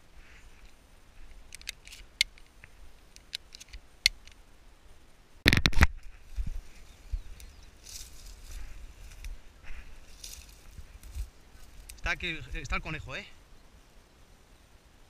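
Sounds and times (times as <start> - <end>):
twigs snapping in dry scrub: 7.4 - 9.4, 10.1 - 12.0.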